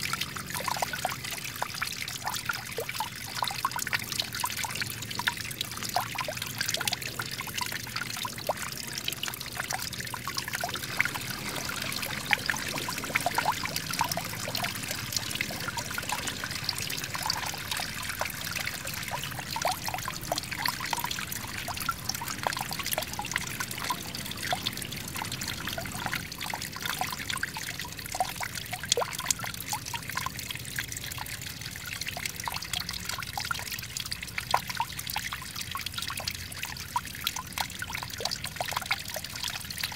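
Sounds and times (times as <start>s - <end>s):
water splashing over rocks: 5.3s - 29.4s.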